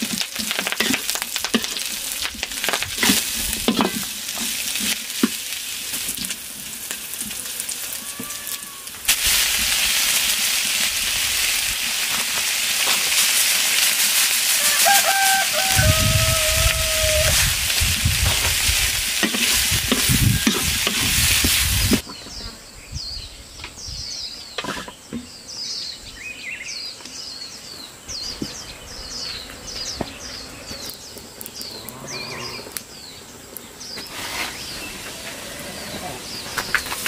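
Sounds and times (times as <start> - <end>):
food sizzling in a wok: 0.0 - 22.0
wooden spoon turning food: 11.9 - 22.1
bird chirping: 22.0 - 35.0.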